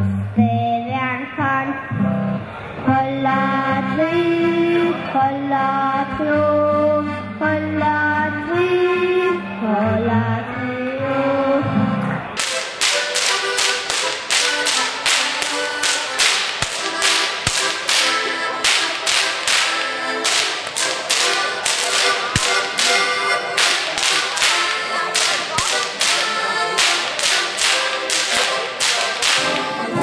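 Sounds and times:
button accordion: 6.5s - 8.4s, 12.4s - 28.8s
rhythmic whip cracks: 12.4s - 30.0s.

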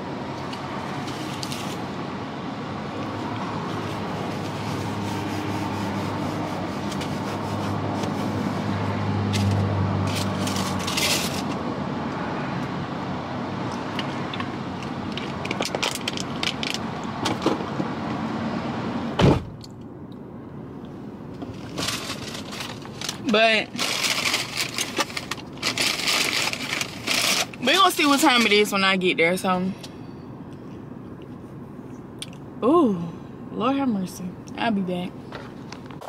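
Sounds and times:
car engine humming: 0.0s - 36.0s
sharp thump: 19.2s - 19.6s.

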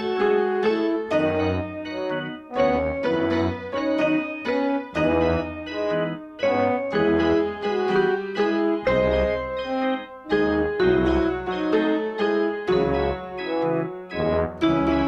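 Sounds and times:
piano music: 0.0s - 15.0s.

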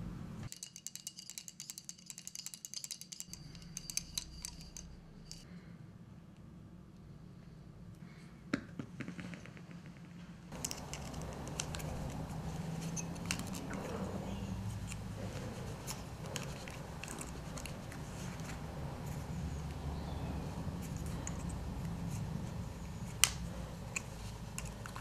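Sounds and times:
steady low hum: 3.1s - 25.0s.

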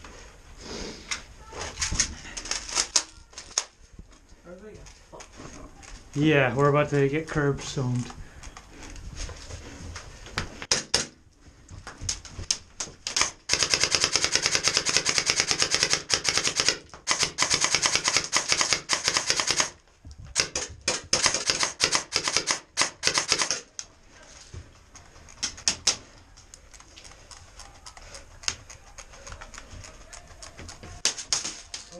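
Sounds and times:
airsoft guns firing bursts: 10.7s - 11.2s, 13.1s - 19.8s, 20.4s - 23.7s.

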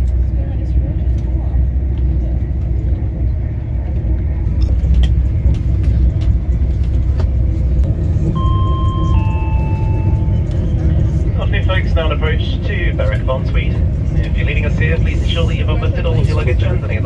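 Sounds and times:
train rumbling from inside carriage: 0.0s - 17.0s
two-note chime: 8.4s - 10.4s.

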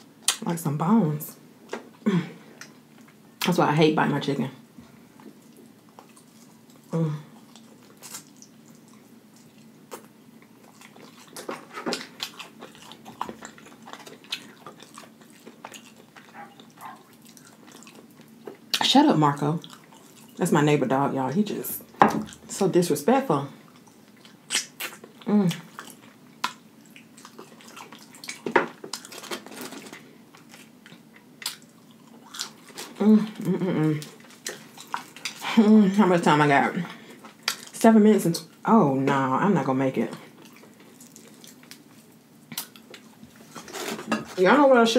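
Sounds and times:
chewing and biting chicken wings: 5.5s - 18.8s, 23.7s - 33.0s
dog barking: 16.3s - 17.1s.

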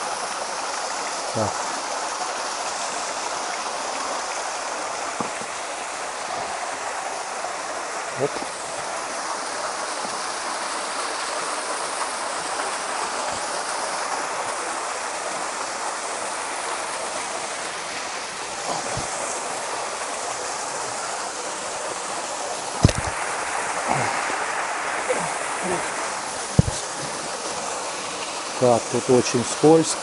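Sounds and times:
waterfall pouring: 0.0s - 30.0s
sharp knocks: 22.8s - 23.2s, 26.5s - 26.8s.

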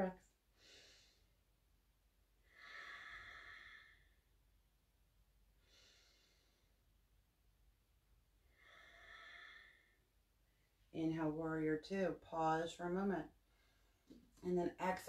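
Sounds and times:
woman breathing: 0.5s - 1.4s, 2.4s - 4.3s, 5.6s - 6.9s, 8.4s - 10.8s, 13.4s - 14.1s.

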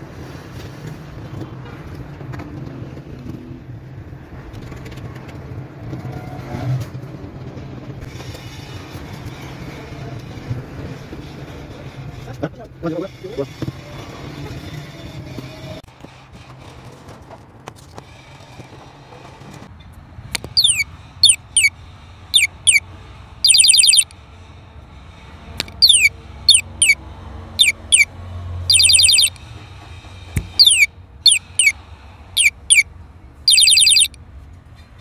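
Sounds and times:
synthetic birdsong chirps and trill: 20.6s - 21.7s, 22.4s - 22.8s, 23.5s - 24.1s, 25.8s - 27.0s, 27.6s - 28.1s, 28.7s - 29.3s, 30.6s - 31.7s, 32.4s - 32.8s, 33.5s - 34.1s.

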